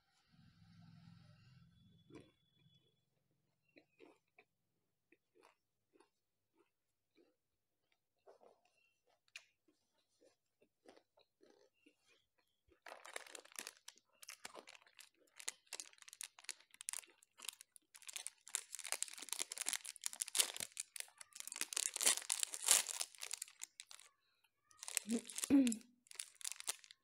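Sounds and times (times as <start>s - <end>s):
plastic wrapper crinkling and tearing: 12.9s - 24.1s, 24.7s - 27.0s.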